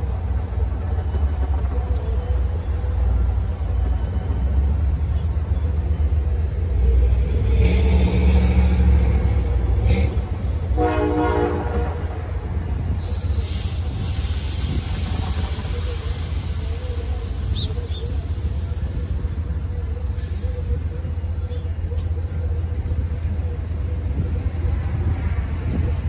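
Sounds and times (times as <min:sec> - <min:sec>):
traffic over railroad crossing: 0:00.0 - 0:26.0
vehicle horn blast: 0:10.8 - 0:12.2.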